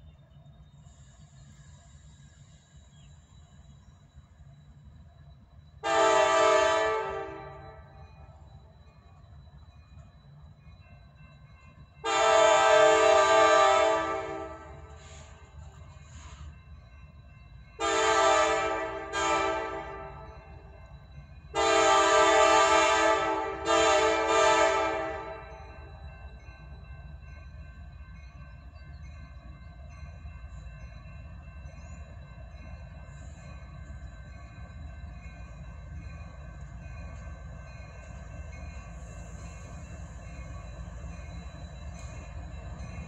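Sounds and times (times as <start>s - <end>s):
low train rumble: 0.0s - 43.0s
locomotive air horn blast: 5.8s - 7.7s, 12.1s - 14.9s, 17.8s - 20.1s, 21.6s - 25.4s.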